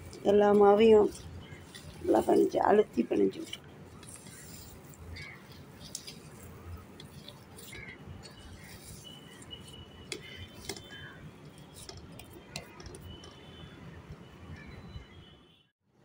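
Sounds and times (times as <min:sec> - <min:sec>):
dough squishing: 0:00.0 - 0:13.4.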